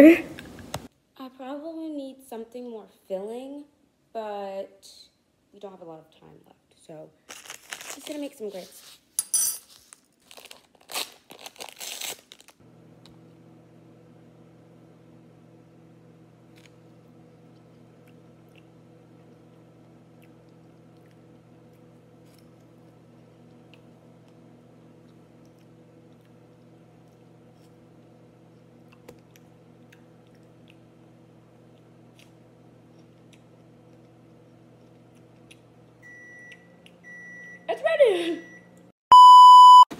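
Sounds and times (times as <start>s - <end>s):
clattering and crinkling handling: 7.3s - 12.5s
microwave oven humming: 12.6s - 39.9s.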